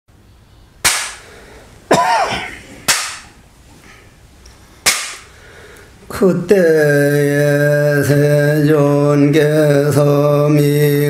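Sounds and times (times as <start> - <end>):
sharp percussive strikes: 0.8 - 1.2, 1.9 - 3.3, 4.8 - 5.2.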